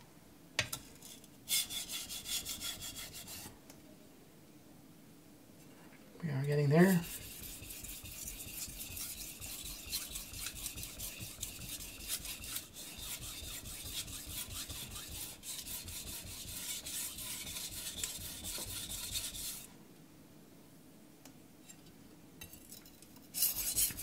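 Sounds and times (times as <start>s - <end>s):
knife scraping on wet whetstone: 1.5s - 3.5s, 6.9s - 19.7s, 23.3s - 24.0s.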